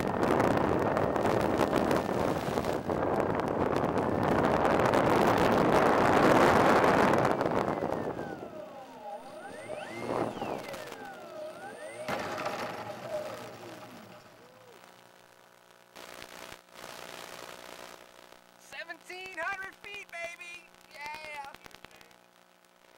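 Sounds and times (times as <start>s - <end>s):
wind rushing over microphone: 0.0s - 11.2s
electric motor whine: 0.0s - 15.6s.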